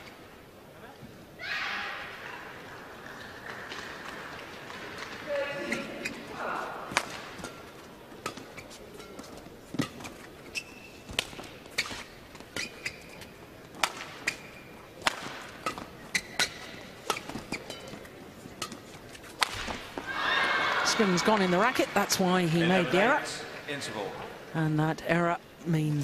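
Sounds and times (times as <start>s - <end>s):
crowd murmur: 2.0s - 10.4s
shoes squeaking on court: 4.8s - 21.6s
rackets striking shuttlecock: 6.9s - 20.1s.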